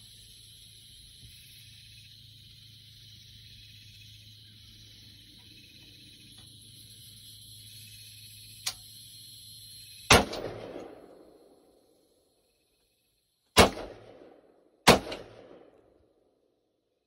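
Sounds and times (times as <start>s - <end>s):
rifle shot with echo: 10.1s - 11.4s, 13.6s - 15.7s.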